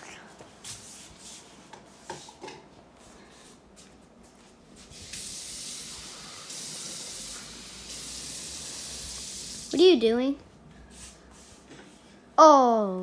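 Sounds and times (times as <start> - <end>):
steady hiss: 4.8 - 10.0.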